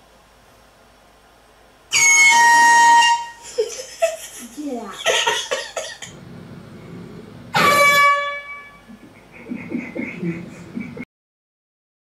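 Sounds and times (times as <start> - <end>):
air horn blast: 1.9 - 3.4, 7.5 - 8.9
person speaking: 4.4 - 5.1.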